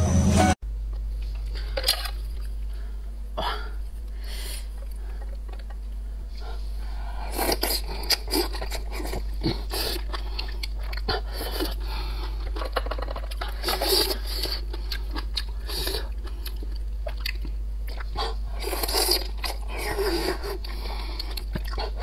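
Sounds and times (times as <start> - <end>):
chewing and lip smacks: 7.3 - 22.0.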